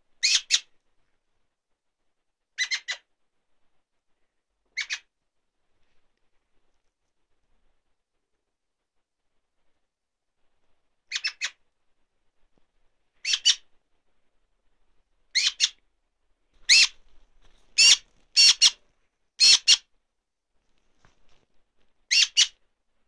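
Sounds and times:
young magpie begging calls: 0:00.2 - 0:00.7, 0:02.6 - 0:03.0, 0:04.8 - 0:05.0, 0:13.2 - 0:13.6, 0:15.4 - 0:15.8, 0:16.7 - 0:17.0, 0:17.8 - 0:18.8, 0:19.4 - 0:19.8, 0:22.1 - 0:22.6.

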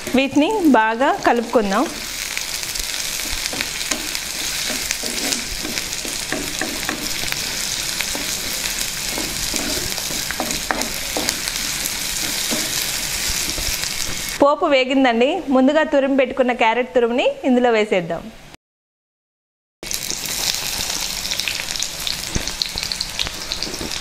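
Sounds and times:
food sizzling in hot oil: 0:00.0 - 0:14.4, 0:19.8 - 0:24.0
wooden spatula scraping a pot: 0:03.1 - 0:14.4.

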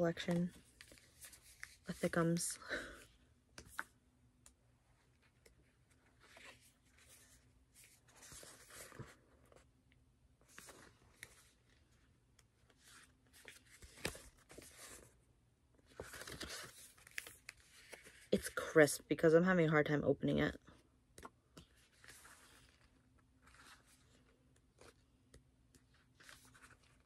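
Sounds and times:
paper rustling: 0:00.2 - 0:02.5, 0:05.0 - 0:09.7, 0:10.4 - 0:15.2, 0:15.8 - 0:18.4, 0:21.2 - 0:25.0, 0:25.7 - 0:27.0.

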